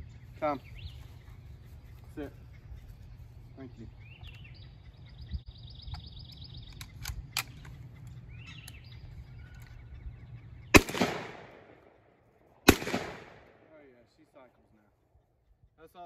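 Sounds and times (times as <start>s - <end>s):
shotgun shot echoing: 10.7s - 11.8s, 12.6s - 13.7s.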